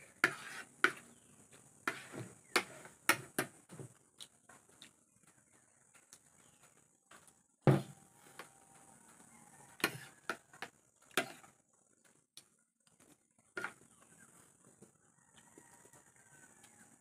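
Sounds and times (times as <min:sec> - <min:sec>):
spoon scraping ceramic plate: 0:00.2 - 0:01.0, 0:01.9 - 0:03.3, 0:09.8 - 0:10.4
cup set down on table: 0:07.7 - 0:07.9.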